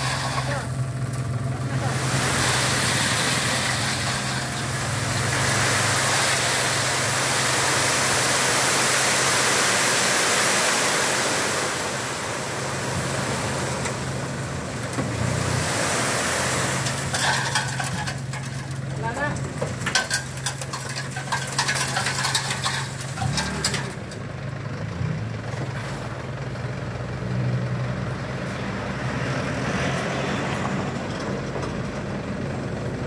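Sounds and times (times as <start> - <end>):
sand pouring and sliding: 0.0 - 14.5, 15.2 - 19.2
truck low hum: 0.0 - 33.0.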